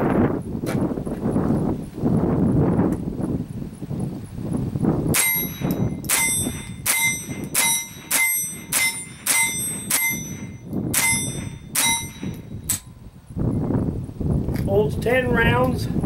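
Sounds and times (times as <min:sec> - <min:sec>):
rifle shots: 0:05.2 - 0:10.4.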